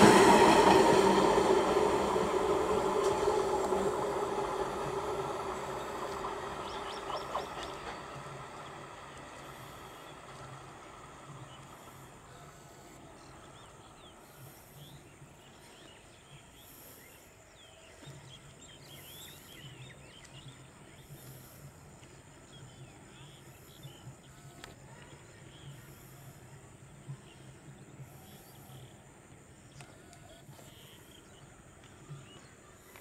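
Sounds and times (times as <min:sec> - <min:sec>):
small birds chirping: 0:04.7 - 0:10.6.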